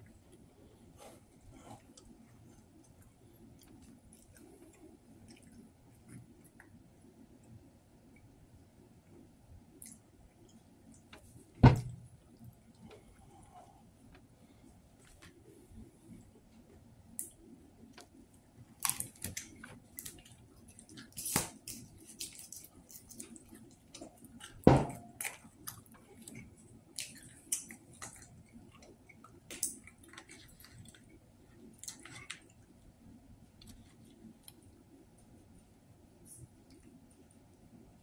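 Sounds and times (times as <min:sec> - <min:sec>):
chewing and wet mouth noises: 0:00.0 - 0:08.3, 0:09.0 - 0:11.3, 0:17.1 - 0:37.8
food handling clicks and crackles: 0:17.2 - 0:32.9.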